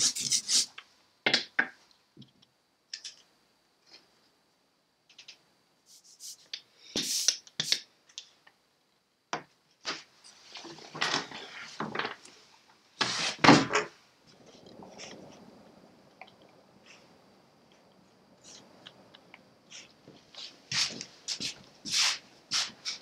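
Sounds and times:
soft scratchy sound: 0:09.7 - 0:23.0.

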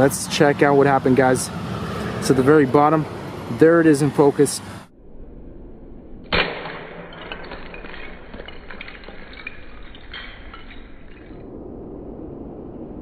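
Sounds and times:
phone case smashing on concrete: 0:06.4 - 0:11.4
plastic pieces clattering on concrete: 0:07.0 - 0:11.4.

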